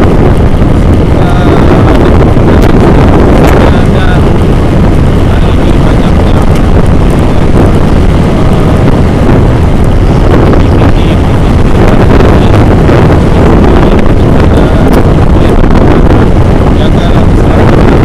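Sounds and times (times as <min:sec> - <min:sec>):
vehicle noise: 0:00.0 - 0:18.0
wind rumble on microphone: 0:00.0 - 0:18.0.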